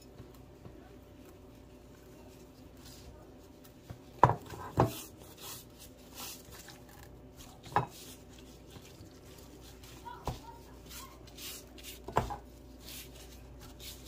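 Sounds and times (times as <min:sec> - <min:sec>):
hands rubbing fish fillets: 0:04.9 - 0:14.0.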